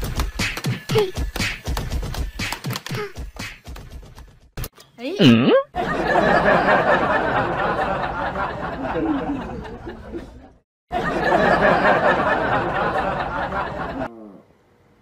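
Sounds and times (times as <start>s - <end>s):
crowd laughing and chattering: 5.8s - 14.1s.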